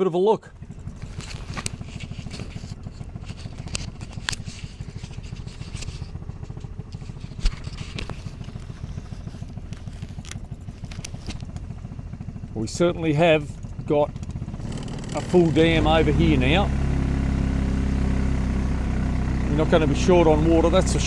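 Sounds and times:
buggy engine running: 0:00.4 - 0:21.0
clicks and rattles: 0:00.9 - 0:11.7.

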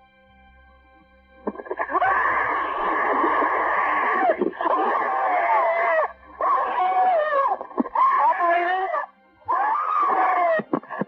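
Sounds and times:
woman screaming over telephone: 0:03.9 - 0:11.0.

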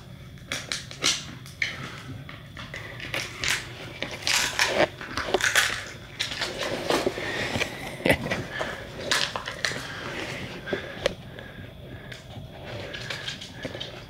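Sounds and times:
dog crunching chew treat: 0:00.4 - 0:10.0.

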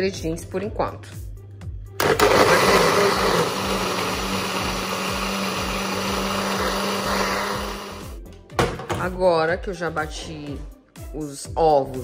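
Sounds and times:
blender motor running: 0:02.0 - 0:08.2.

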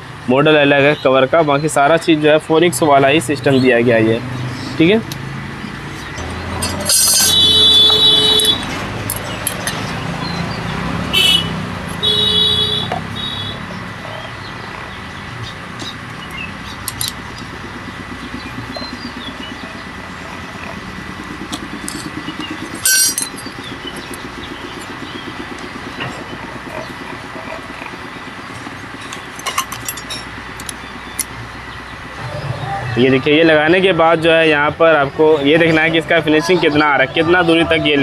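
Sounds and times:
passing vehicles: 0:00.0 - 0:38.0
loud tonal horn blasts: 0:06.2 - 0:09.0, 0:11.0 - 0:13.7.

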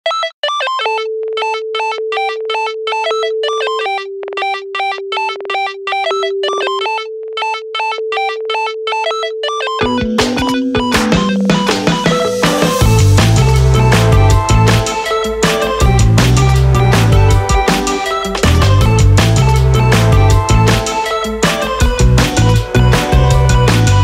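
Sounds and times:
electronic synthesizer music: 0:00.5 - 0:24.0
beat with bass: 0:09.8 - 0:24.0.

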